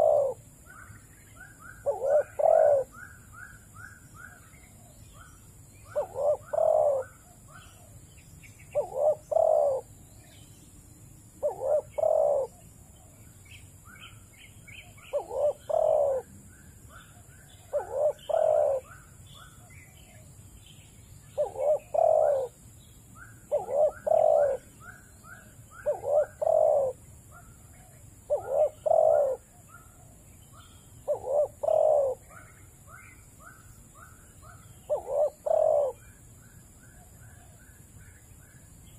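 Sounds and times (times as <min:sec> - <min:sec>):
dove cooing: 0:00.0 - 0:00.8, 0:01.4 - 0:08.0, 0:08.7 - 0:09.9, 0:11.4 - 0:13.1, 0:15.0 - 0:16.3, 0:16.9 - 0:20.2, 0:21.4 - 0:22.6, 0:23.3 - 0:36.2
small birds chirping: 0:00.0 - 0:38.9.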